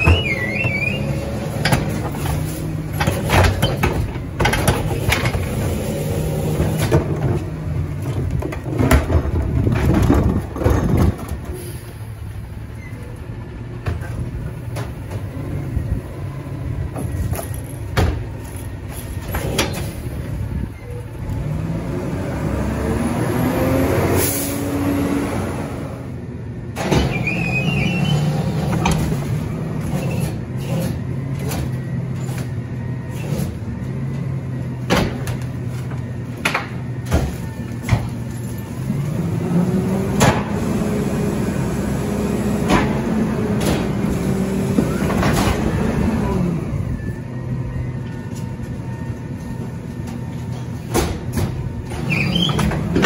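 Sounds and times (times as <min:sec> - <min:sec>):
cart banging and clattering: 0:00.0 - 0:12.0, 0:48.3 - 0:53.0
packer hydraulics: 0:00.0 - 0:21.8, 0:26.7 - 0:53.0
garbage truck engine revving: 0:00.0 - 0:53.0.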